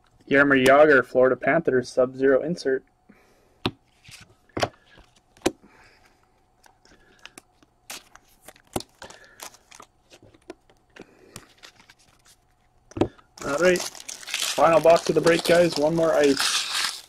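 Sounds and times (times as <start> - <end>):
plastic sleeves rustling and crinkling: 6.6 - 17.0.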